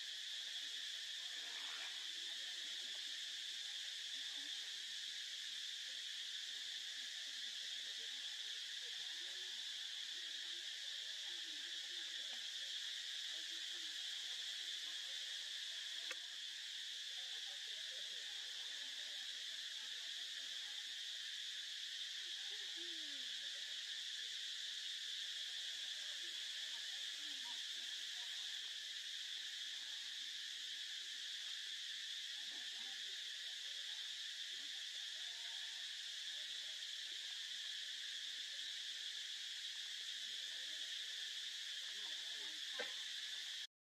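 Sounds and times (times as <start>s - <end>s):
insect chorus buzzing: 0.0s - 43.7s
faint click: 16.0s - 16.2s.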